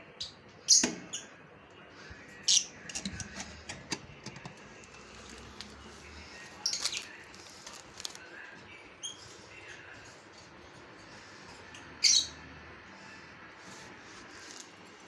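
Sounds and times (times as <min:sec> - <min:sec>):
lovebirds chirping: 0:06.0 - 0:07.8, 0:11.7 - 0:12.4.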